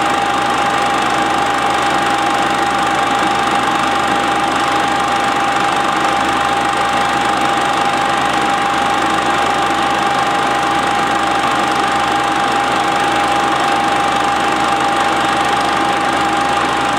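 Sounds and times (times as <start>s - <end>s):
film projector running: 0.0s - 16.9s.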